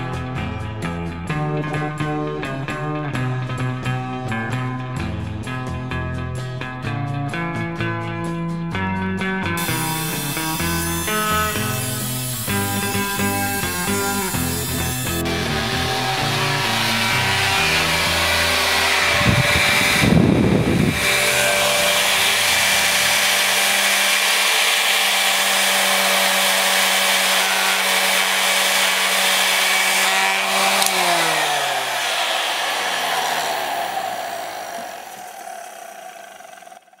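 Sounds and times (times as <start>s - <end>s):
hairdryer motor humming: 9.6s - 37.0s
blown air rushing: 15.2s - 24.3s, 31.0s - 35.8s.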